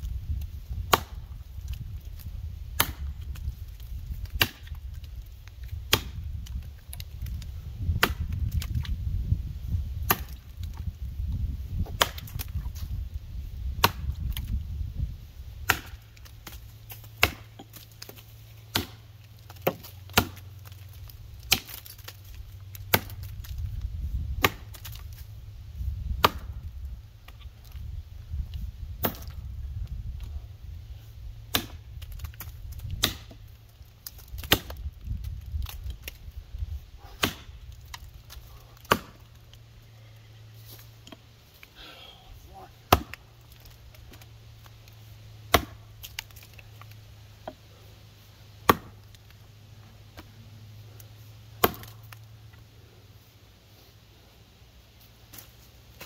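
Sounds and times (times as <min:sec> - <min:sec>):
axe chopping wood: 0:00.8 - 0:05.0, 0:05.6 - 0:09.0, 0:10.0 - 0:10.9, 0:11.8 - 0:12.8, 0:13.7 - 0:14.6, 0:15.6 - 0:23.8, 0:24.4 - 0:25.2, 0:26.2 - 0:26.7, 0:29.0 - 0:29.4, 0:31.5 - 0:33.4, 0:34.0 - 0:36.2, 0:37.0 - 0:39.4, 0:42.6 - 0:44.8, 0:45.5 - 0:46.6, 0:48.6 - 0:49.3, 0:51.6 - 0:52.2.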